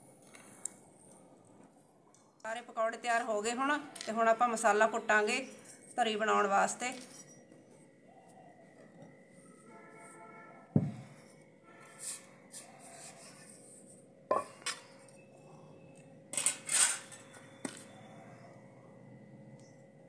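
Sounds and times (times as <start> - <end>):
heavy thud of clay pot: 10.8 - 11.1
knocks and clinks of utensils: 14.3 - 14.9, 16.4 - 17.8.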